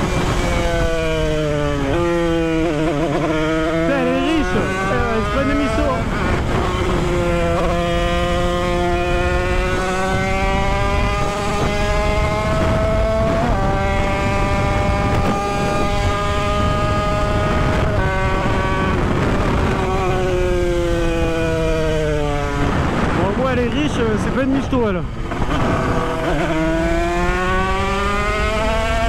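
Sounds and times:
two-stroke motorcycle engine revving: 0:00.0 - 0:29.0.

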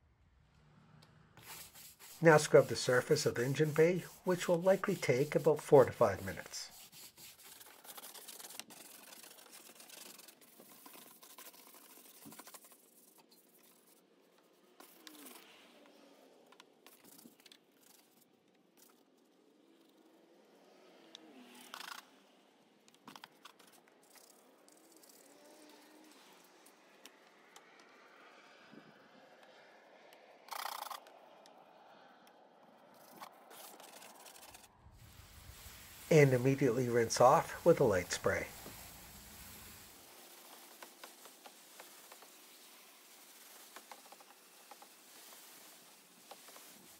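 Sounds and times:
stiff brushes scrubbing through foam: 0:01.4 - 0:13.8, 0:33.5 - 0:46.9.

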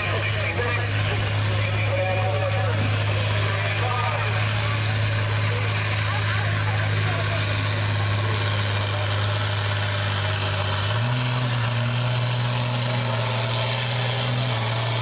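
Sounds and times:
tractor diesel engine under load: 0:00.0 - 0:15.0.

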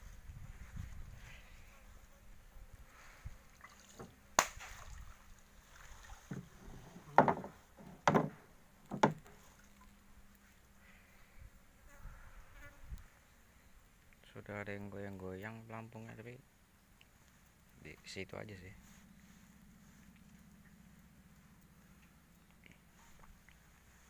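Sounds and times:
faint steady hum: 0:00.0 - 0:24.0
sharp knocks on a small boat: 0:06.3 - 0:09.4.

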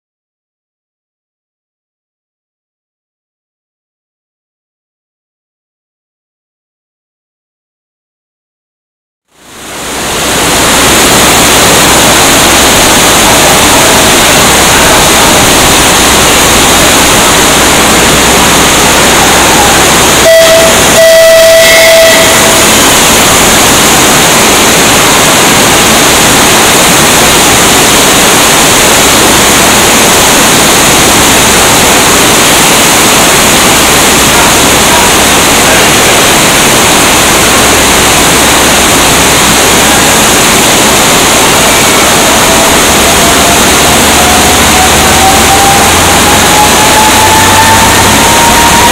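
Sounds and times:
heavy rain on a roof: 0:09.3 - 0:48.9
short horn blast: 0:12.3 - 0:23.8, 0:41.2 - 0:48.9.

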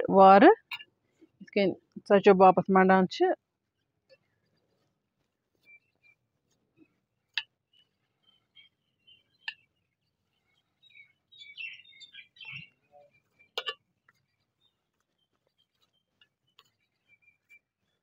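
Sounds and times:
birds chirping faintly: 0:03.4 - 0:18.0.

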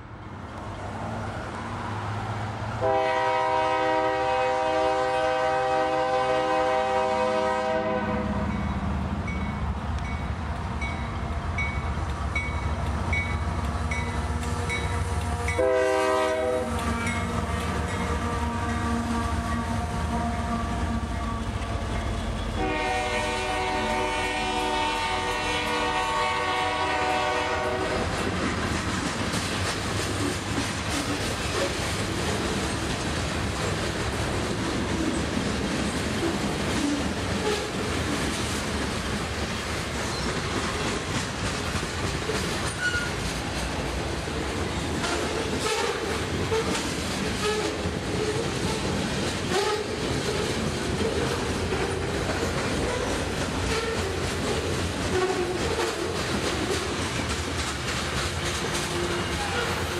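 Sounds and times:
diesel engines rumbling: 0:00.0 - 0:59.9
train horn blasts: 0:02.8 - 0:08.6, 0:14.4 - 0:21.9, 0:22.6 - 0:28.2, 0:45.0 - 0:47.8, 0:49.5 - 0:50.0, 0:58.9 - 0:59.9
train wheels clacking: 0:06.8 - 0:59.9
crossing bell dinging: 0:08.4 - 0:15.8, 0:17.0 - 0:18.2, 0:19.5 - 0:22.6.

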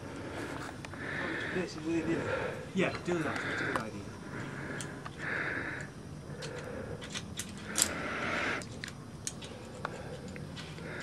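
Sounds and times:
carabiners clinking on steel cable: 0:06.4 - 0:08.0.

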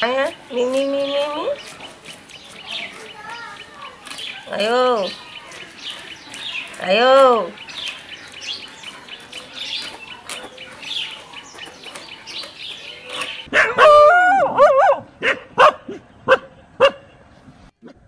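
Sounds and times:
dog barking: 0:13.5 - 0:17.1
dog howling: 0:13.6 - 0:15.0.

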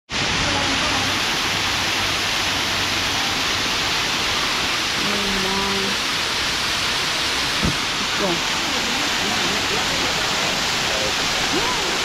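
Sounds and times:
waterfall rushing into pool: 0:00.1 - 0:12.0
brief low bump: 0:07.6 - 0:07.9.

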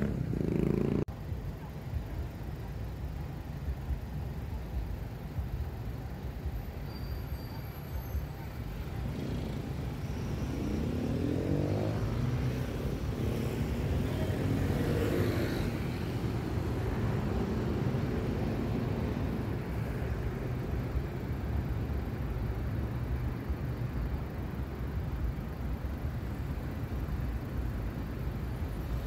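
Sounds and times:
vehicle accelerating: 0:00.0 - 0:01.2, 0:08.4 - 0:21.9
car and bus engines in traffic: 0:00.0 - 0:29.0.

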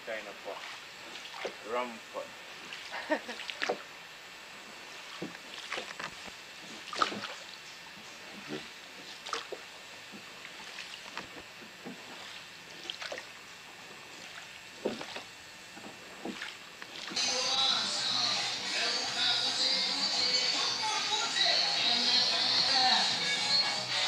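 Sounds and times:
oars splashing and knocking: 0:02.7 - 0:03.8, 0:05.0 - 0:06.2, 0:06.8 - 0:07.5, 0:10.5 - 0:13.3, 0:14.2 - 0:17.2.

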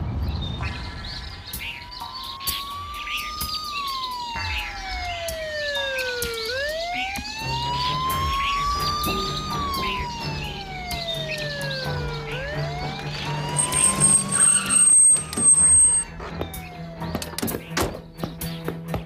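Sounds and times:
birds chirping faintly: 0:00.0 - 0:19.0
police siren wailing: 0:01.5 - 0:17.8
vehicle engine humming: 0:03.9 - 0:17.4.

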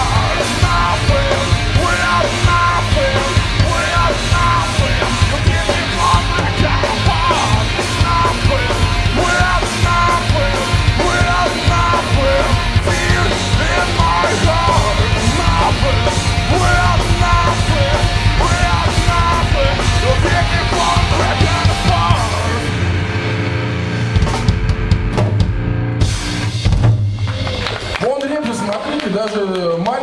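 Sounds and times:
bass guitar: 0:00.0 - 0:28.0
distorted electric guitar: 0:00.0 - 0:28.0
drum kit: 0:00.0 - 0:29.2.

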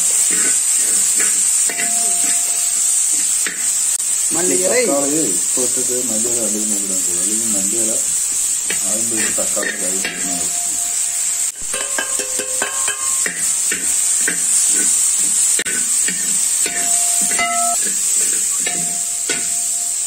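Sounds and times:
vegetables sizzling in oil: 0:00.0 - 0:20.0
metal spatula scraping pot: 0:00.1 - 0:03.8
metal ringing tones: 0:16.6 - 0:18.0.

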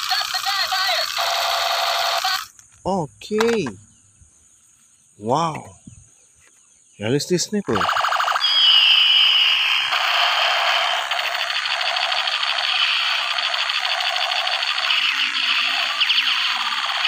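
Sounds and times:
toy electronic chirps: 0:00.0 - 0:02.5, 0:07.7 - 0:17.0
toy gun rattling buzz: 0:00.0 - 0:02.6, 0:07.9 - 0:17.0.

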